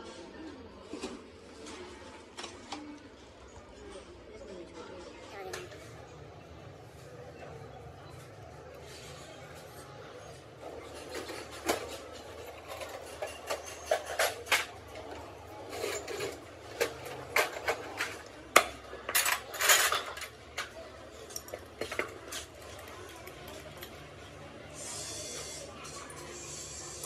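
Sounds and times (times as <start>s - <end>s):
metal tools clinking: 10.8s - 24.0s.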